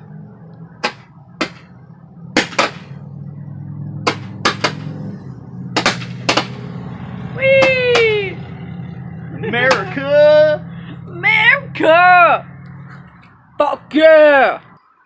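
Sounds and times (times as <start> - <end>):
fireworks sharp bangs: 2.3 - 3.0, 4.0 - 5.0, 5.7 - 6.9.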